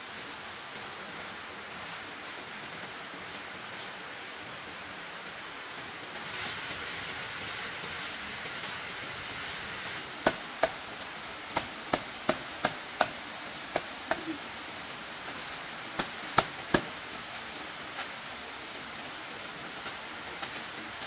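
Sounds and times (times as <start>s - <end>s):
steady hiss: 0.0s - 21.0s
hand tool chopping wood: 10.2s - 10.8s, 11.5s - 14.3s, 16.0s - 17.0s.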